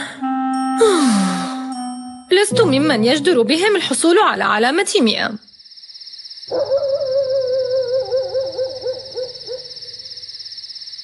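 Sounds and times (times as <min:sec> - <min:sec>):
wavering background music note: 0:00.0 - 0:04.2
crickets chirping: 0:02.3 - 0:11.0.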